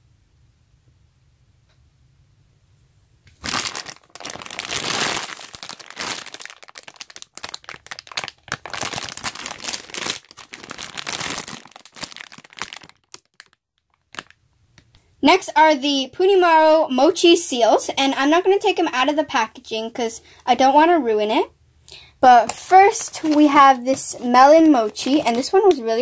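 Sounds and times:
plastic packaging crinkling: 0:03.3 - 0:14.9, 0:22.3 - 0:26.0.

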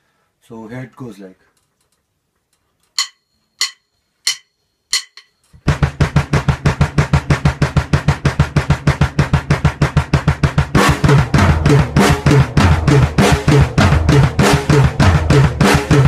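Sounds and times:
drum kit roll: 0:03.0 - 0:16.0
double bass drum kicks: 0:05.6 - 0:16.0.

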